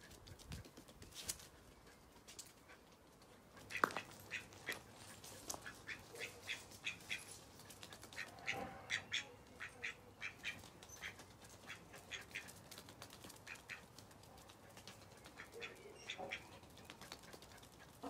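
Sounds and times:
animals scampering on paving: 0.0s - 18.0s
duck calls: 3.7s - 4.9s, 5.6s - 7.3s, 8.1s - 12.6s.

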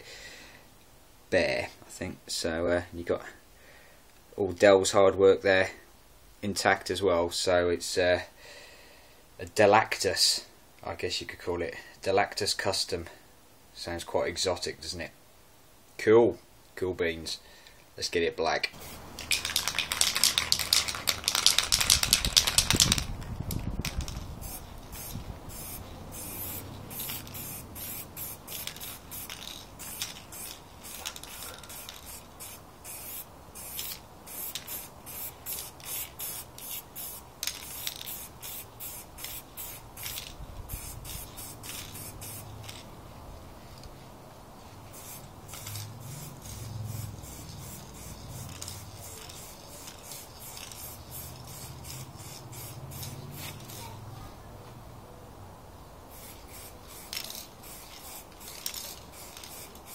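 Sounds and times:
spray can rattling when shaken: 18.8s - 42.9s, 44.9s - 54.0s, 56.1s - 59.9s
spray paint hissing: 18.8s - 42.9s, 44.8s - 54.0s, 56.1s - 59.9s.

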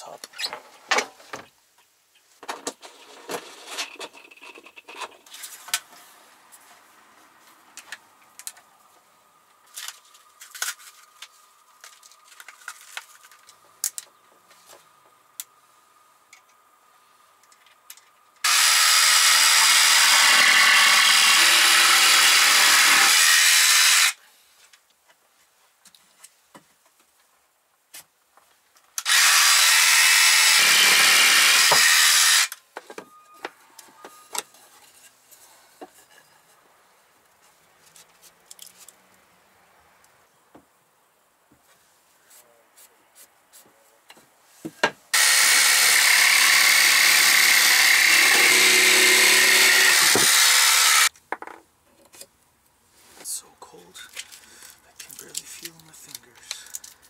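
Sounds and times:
power saw cutting wood: 18.4s - 24.2s, 29.0s - 32.6s, 45.1s - 51.1s.

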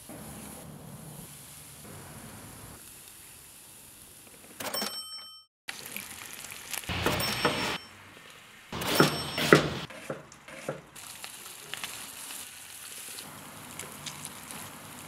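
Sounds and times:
food sizzling on a grill: 0.0s - 4.4s, 5.7s - 8.8s, 10.5s - 15.0s
bacon frying in a pan: 5.7s - 7.0s, 10.8s - 15.0s
metallic ring: 8.8s - 9.8s.

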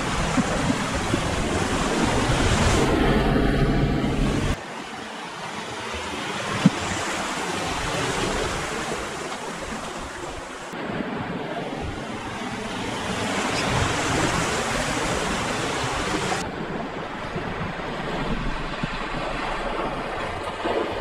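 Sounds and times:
rushing water of river rapids: 4.5s - 21.0s.

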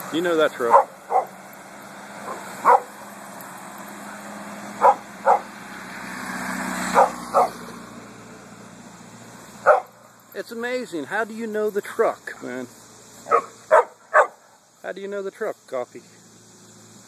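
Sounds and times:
truck engine and road noise: 0.0s - 17.0s
small dog barking sharply: 0.7s - 1.4s, 2.3s - 2.9s, 4.8s - 5.5s, 6.9s - 7.6s, 9.6s - 10.0s, 13.3s - 14.4s.

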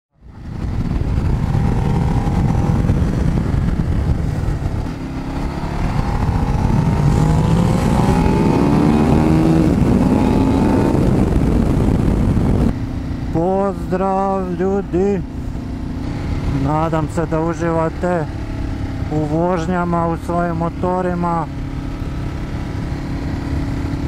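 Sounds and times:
motorcycle engine accelerating: 0.2s - 24.0s
wind noise on microphone: 0.2s - 24.0s.

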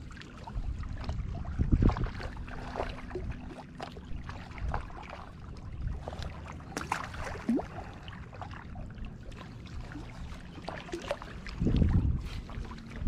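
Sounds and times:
wind buffeting microphone: 0.0s - 6.5s, 11.2s - 13.0s
water lapping on rocky shore: 0.0s - 13.0s
small splash of fish: 6.1s - 8.5s.

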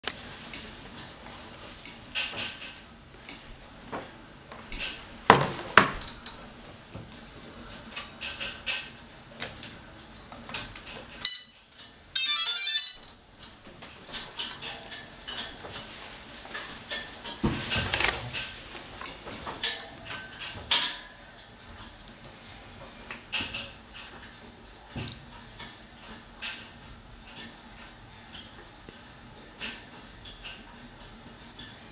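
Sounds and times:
short electronic beep: 25.1s - 25.3s.

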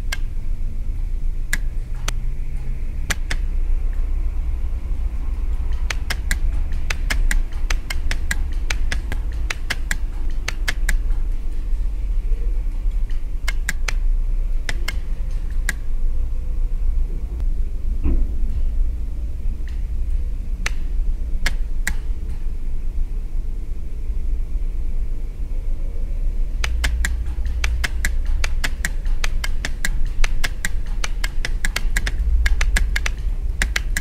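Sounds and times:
relays clicking: 0.0s - 0.6s, 1.4s - 4.0s, 5.3s - 11.7s, 12.7s - 16.0s, 19.6s - 22.5s, 26.5s - 34.0s
steady low hum: 0.0s - 34.0s.

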